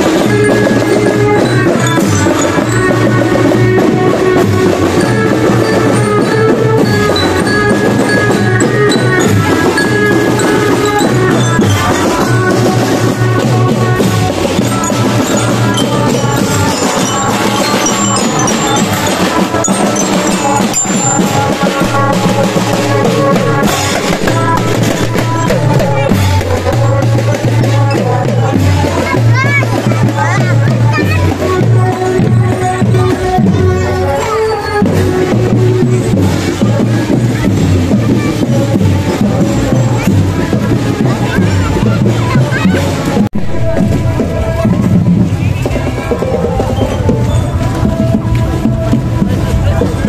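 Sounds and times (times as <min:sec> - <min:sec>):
drums beating: 0:00.0 - 0:50.0
bell lyre melody: 0:00.1 - 0:27.0.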